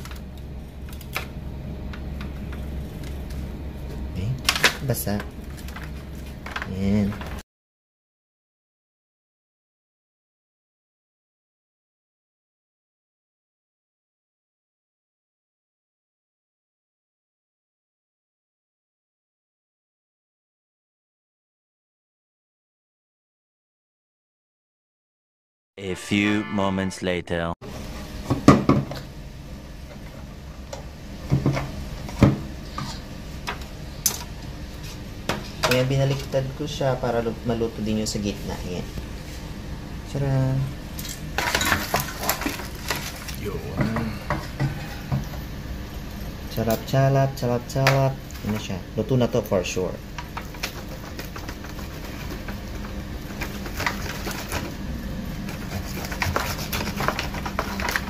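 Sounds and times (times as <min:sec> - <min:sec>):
low steady hum: 0:00.0 - 0:07.4, 0:25.8 - 0:58.0
knife and tongs scraping foil tray: 0:55.6 - 0:58.0.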